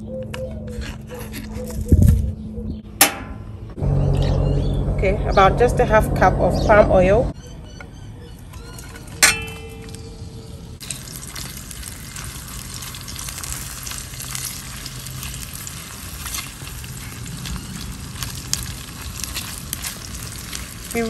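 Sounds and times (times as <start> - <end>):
pot knock with ringing tone: 9.2 - 10.0
oil sizzling: 10.8 - 21.0
spatula clicking and scraping: 12.1 - 21.0.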